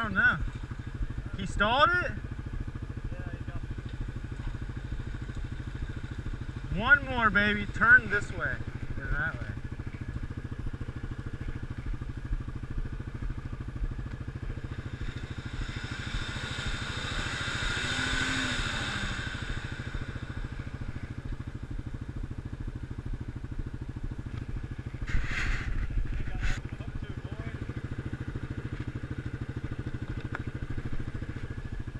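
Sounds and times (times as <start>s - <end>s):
atv engine idling: 0.0s - 31.9s
rushing noise: 14.7s - 21.1s.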